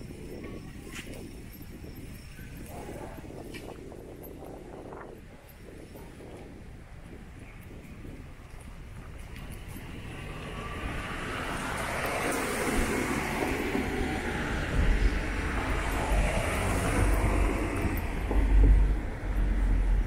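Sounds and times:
wind rumble on microphone: 0.0 - 20.0
traffic approaching: 9.0 - 20.0.

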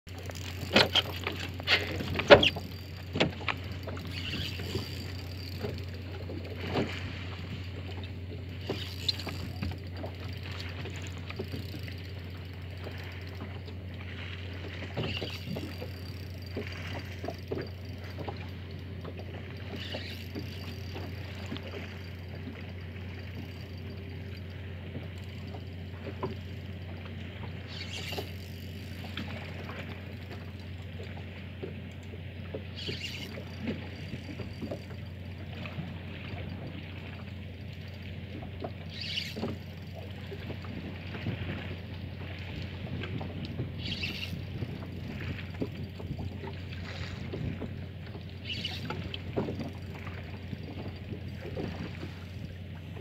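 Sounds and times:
knocks and taps on boat: 0.1 - 28.3, 44.4 - 53.0
steady low hum: 0.1 - 53.0
water slapping against hull: 0.1 - 53.0.

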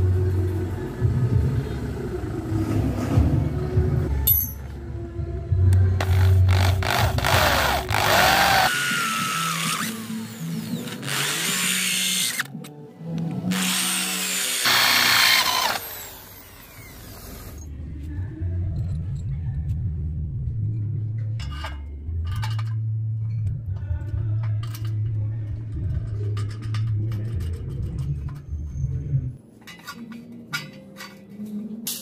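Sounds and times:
electric power tool running: 6.0 - 12.4, 13.5 - 17.6.

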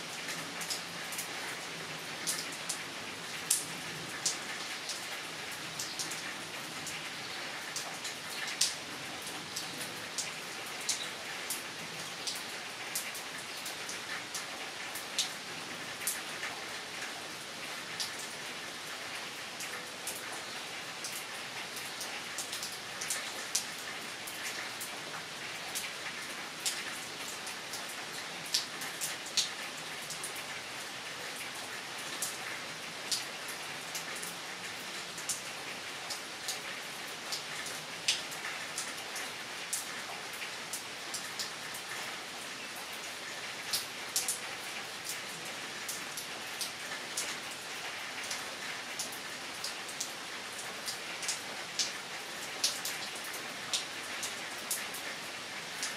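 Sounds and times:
rain on trees and foliage: 0.0 - 55.9.

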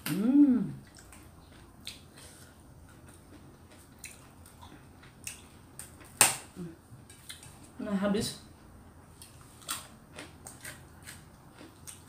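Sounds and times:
person chewing food: 0.8 - 6.3, 9.1 - 12.0.

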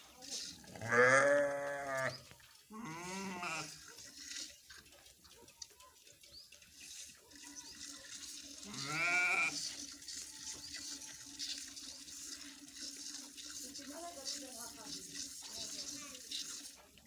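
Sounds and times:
animal bleating call: 0.8 - 3.8, 8.6 - 9.6
milk streams hissing into pot: 7.0 - 17.0.

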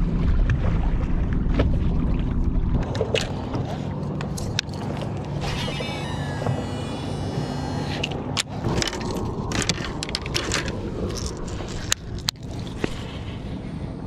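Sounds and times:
boat motor running: 0.0 - 13.7
thin high whine: 5.2 - 9.0.

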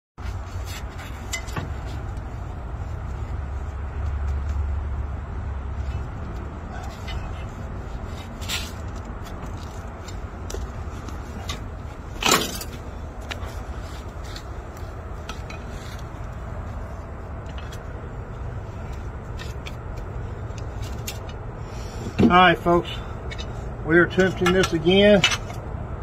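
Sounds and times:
steady low rumble: 0.2 - 26.0
light metallic clinks and knocks: 1.0 - 2.2.

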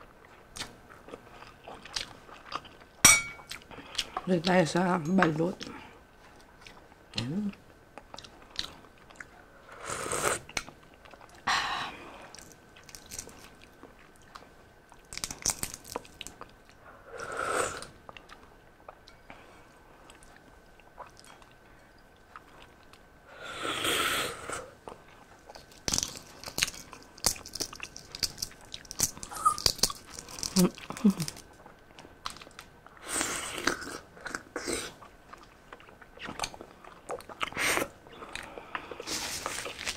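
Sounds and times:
eggshell cracking: 15.0 - 16.4, 25.5 - 31.5
eating sounds: 23.8 - 39.9.

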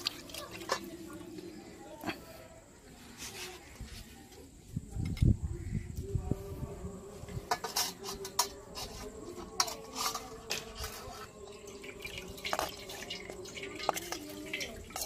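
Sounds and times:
liquid trickling through strainer: 0.0 - 1.4, 7.5 - 15.0.

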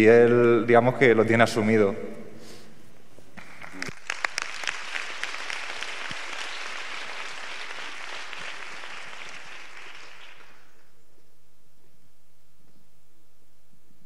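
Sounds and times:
audience applause: 3.4 - 10.9.

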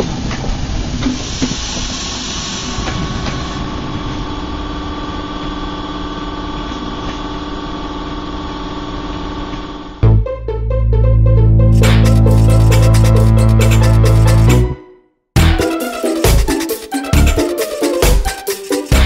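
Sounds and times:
train hum with held tones: 0.0 - 11.6.

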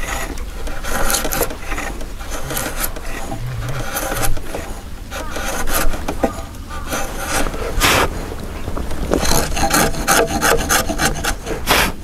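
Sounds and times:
chisel scraping wood: 0.0 - 6.2, 9.2 - 11.9.

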